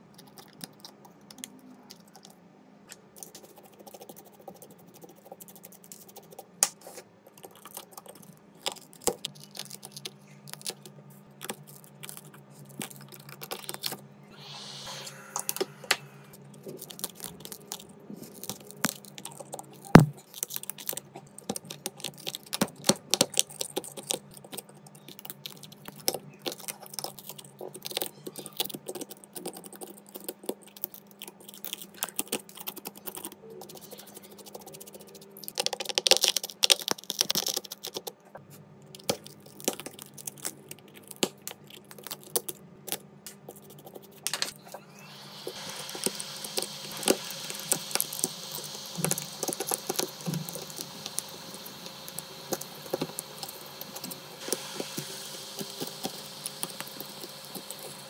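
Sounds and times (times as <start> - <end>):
faint steady hum: 0.0 - 58.0
brief hiss: 14.3 - 16.3.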